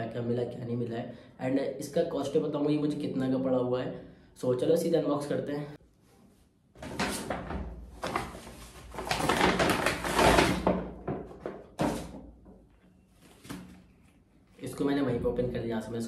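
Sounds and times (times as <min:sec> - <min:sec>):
paper bag rustling: 0:08.0 - 0:10.7.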